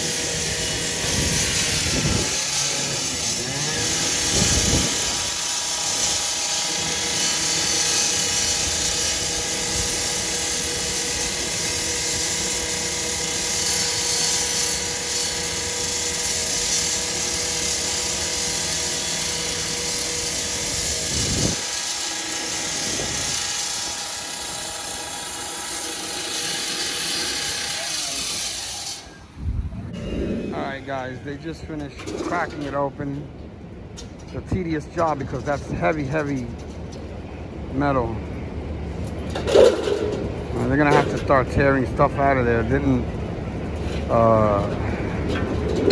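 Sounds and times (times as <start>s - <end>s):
power saw cutting metal: 0.0s - 29.2s, 39.3s - 43.0s, 43.7s - 45.9s.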